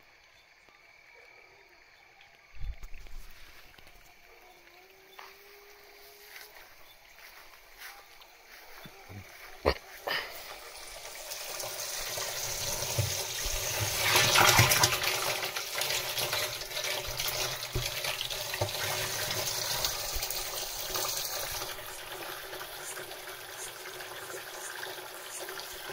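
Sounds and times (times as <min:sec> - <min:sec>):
water pouring into plastic drum: 0:10.4 - 0:25.9.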